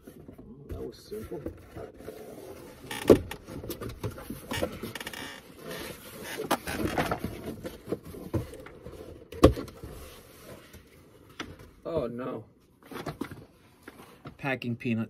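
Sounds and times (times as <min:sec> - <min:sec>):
cardboard flaps scraping and rustling: 0:01.2 - 0:11.3.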